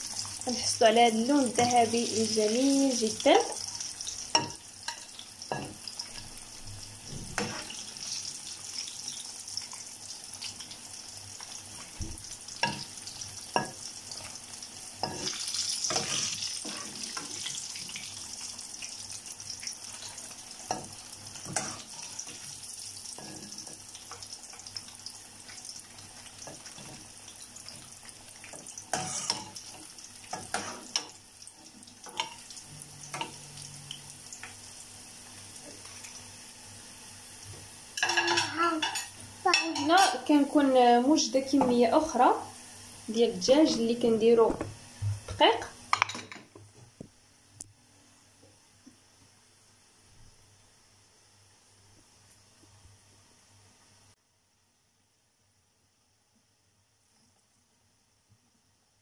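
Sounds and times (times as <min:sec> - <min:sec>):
chicken frying in hot oil: 0:00.0 - 0:46.0.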